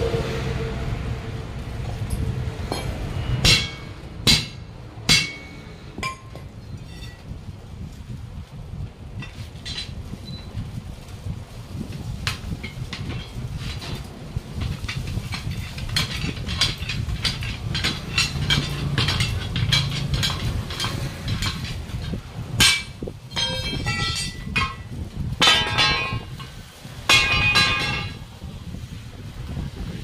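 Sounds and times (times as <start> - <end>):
low rumble: 0.0 - 10.5
metallic clangs: 2.0 - 7.2, 12.6 - 28.2
tyre lever scraping steel rim: 12.6 - 24.8.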